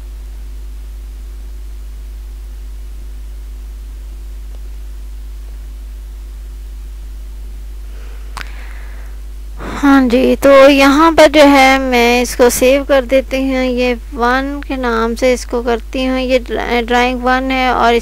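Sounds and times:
electrical hum: 0.0 - 18.0
faint hiss: 7.8 - 15.4.

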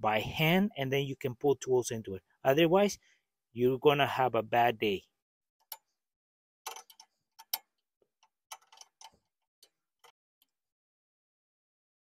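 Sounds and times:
wrench clicking on metal: 6.7 - 7.7.

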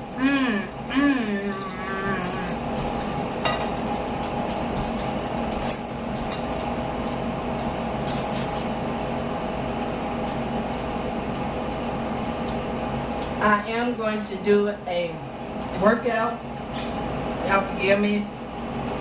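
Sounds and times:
steady hum: 0.0 - 19.0
forks clinking on plates: 1.5 - 6.7, 8.0 - 8.8.

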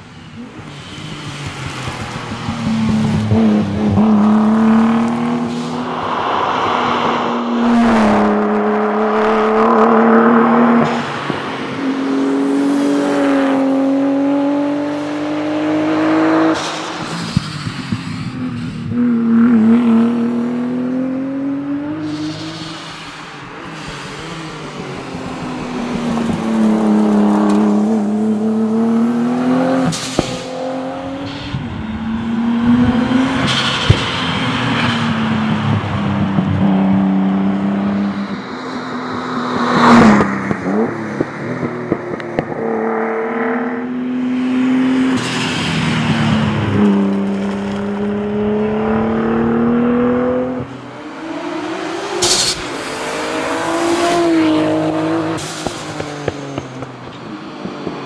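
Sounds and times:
rally car engine revving past: 1.7 - 17.3, 39.6 - 56.8.

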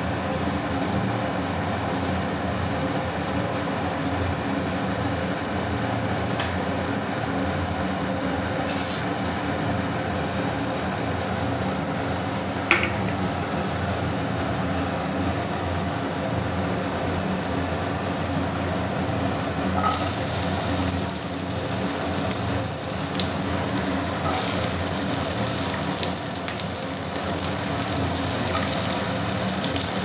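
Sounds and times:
seeds sizzling in oil: 19.8 - 30.0.

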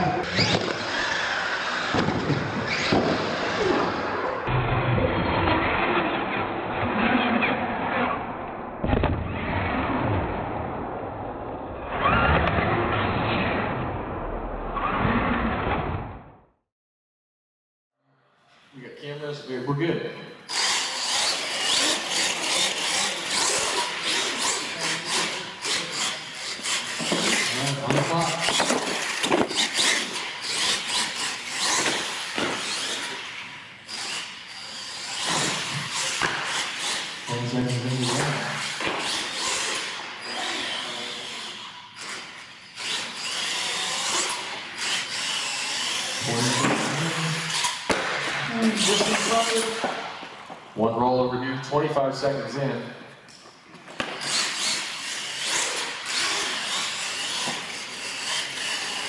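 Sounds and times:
toy truck motor and gears whining: 0.0 - 4.5, 20.5 - 47.9, 53.3 - 59.0.

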